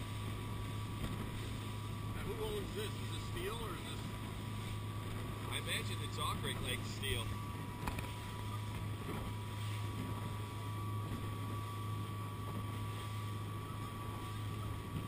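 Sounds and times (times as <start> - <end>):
faint high whine: 0.0 - 15.0
motorboat engine hum: 0.0 - 15.0
wind and water noise: 0.0 - 15.0.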